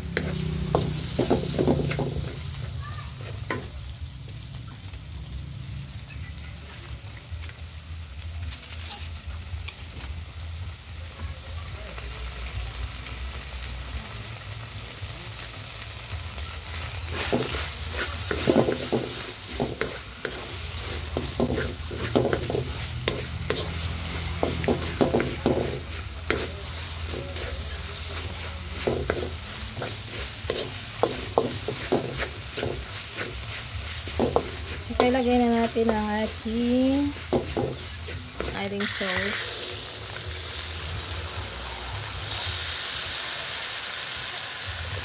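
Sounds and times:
spatula scraping and knocking pan: 0.0s - 3.8s, 17.1s - 39.6s
food sizzling in oil: 0.0s - 45.0s.

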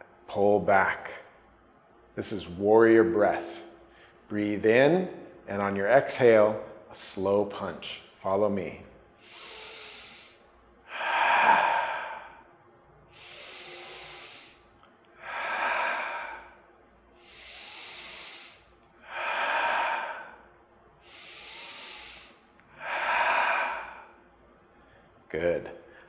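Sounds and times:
man breathing slowly: 9.2s - 25.2s.

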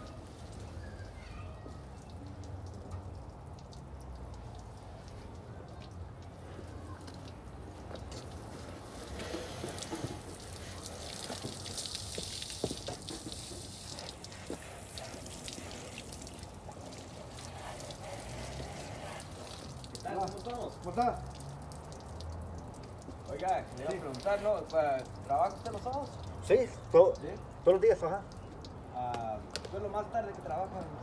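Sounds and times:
water splashing and dripping: 0.0s - 31.0s
hose spray hitting car: 7.1s - 21.1s, 23.0s - 26.1s.

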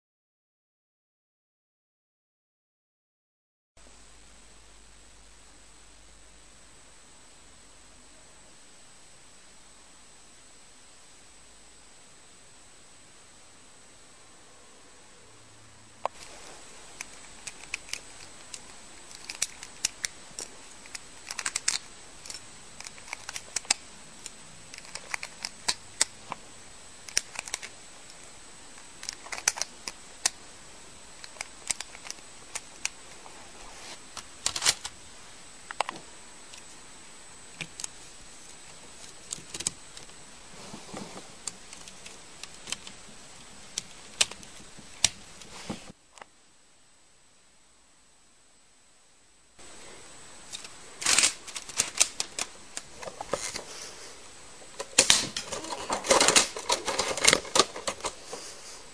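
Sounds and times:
steady background hiss: 3.8s - 58.9s
plastic bricks clicking: 17.4s - 23.8s.

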